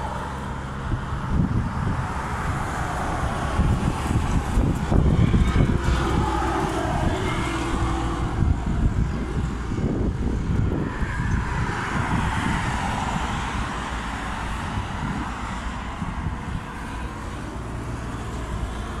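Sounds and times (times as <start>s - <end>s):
road traffic passing: 0.0s - 19.0s
wind buffeting microphone: 0.0s - 19.0s.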